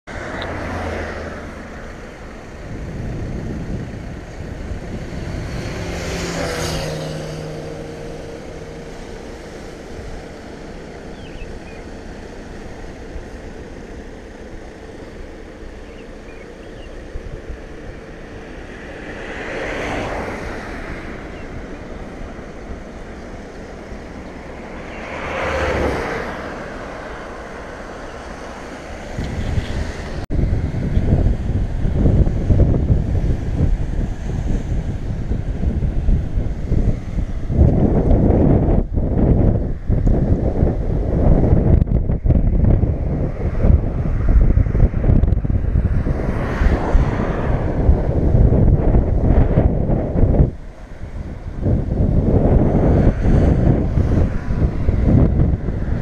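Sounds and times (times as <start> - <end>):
vehicles passing: 0.0 - 56.0
wind on microphone: 0.1 - 56.0
surf on rocky shore: 40.2 - 56.0.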